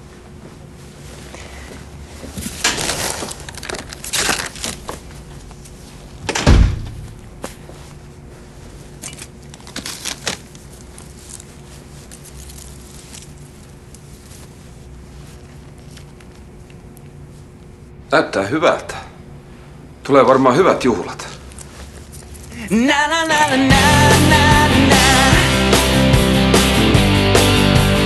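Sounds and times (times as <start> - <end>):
heavy thump: 6.4 - 7.2
leather jacket rustling: 6.9 - 16.1.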